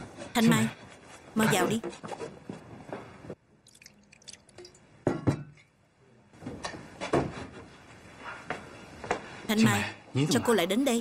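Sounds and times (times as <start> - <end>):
cup clinks and knocks: 4.6 - 5.7.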